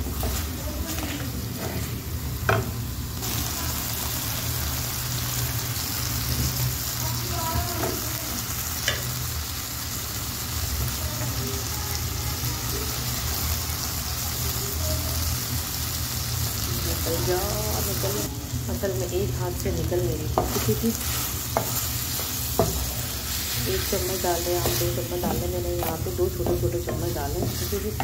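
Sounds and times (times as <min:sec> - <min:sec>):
chicken sizzling in oil: 0:00.0 - 0:28.0
spatula knocking against pan: 0:20.3 - 0:20.7, 0:21.5 - 0:23.0, 0:24.1 - 0:28.0.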